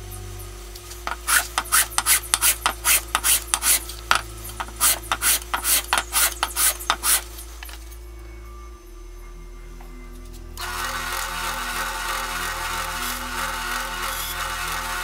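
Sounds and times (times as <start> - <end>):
metal plate rasping on sandpaper: 1.1 - 3.8, 4.6 - 7.3.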